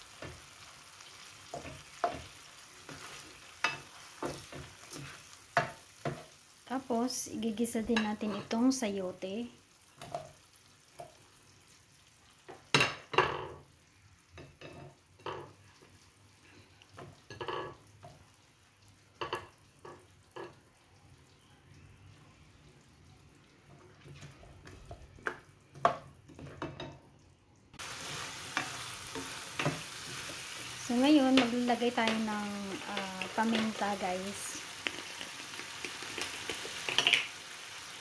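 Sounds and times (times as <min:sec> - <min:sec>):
faint simmer: 0:00.0 - 0:38.0
steady sizzle: 0:00.0 - 0:38.0
spoon knocking and scraping pan: 0:00.1 - 0:00.6, 0:01.2 - 0:06.4, 0:07.8 - 0:08.6, 0:10.0 - 0:11.2, 0:12.4 - 0:13.7, 0:14.3 - 0:15.6, 0:17.0 - 0:18.3, 0:19.1 - 0:20.6, 0:24.0 - 0:27.0, 0:27.8 - 0:34.0, 0:34.8 - 0:37.3.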